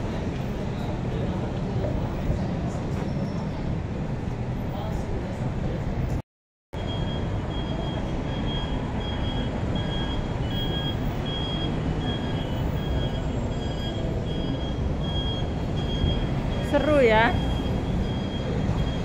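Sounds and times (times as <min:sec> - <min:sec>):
city street traffic: 0:00.0 - 0:06.2, 0:06.8 - 0:19.0
high electronic beeps: 0:06.8 - 0:19.0.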